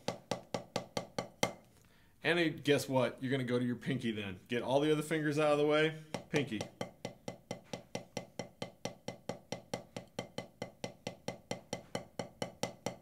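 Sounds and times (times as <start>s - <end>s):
drumstick tapping practice pad: 0.0s - 1.7s, 6.1s - 13.0s.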